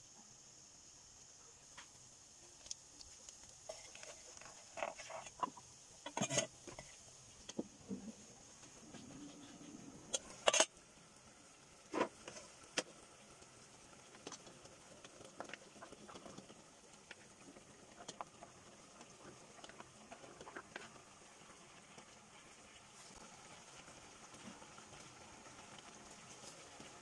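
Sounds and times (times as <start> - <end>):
faint steady hiss: 0.0 - 27.0
wooden spatula stirring: 3.4 - 10.7, 14.1 - 21.1.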